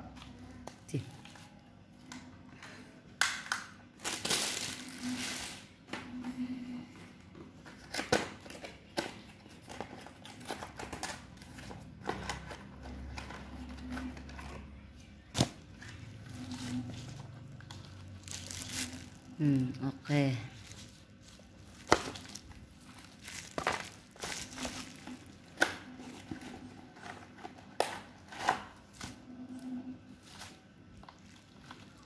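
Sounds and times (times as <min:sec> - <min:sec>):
plastic packaging crinkling: 0:04.0 - 0:05.7, 0:15.2 - 0:29.0, 0:30.1 - 0:32.0.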